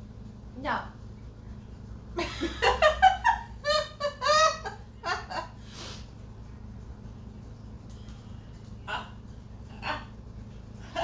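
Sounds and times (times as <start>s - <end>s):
women laughing: 2.2s - 5.6s.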